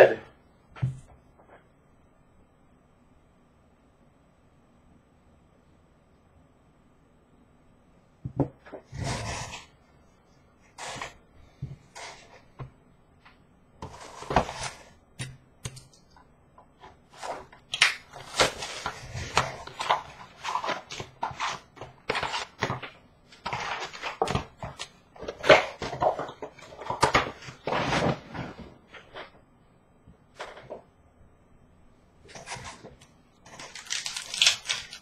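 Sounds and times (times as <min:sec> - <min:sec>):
cardboard and wrappers crackling: 0:17.1 - 0:29.4, 0:32.3 - 0:35.0.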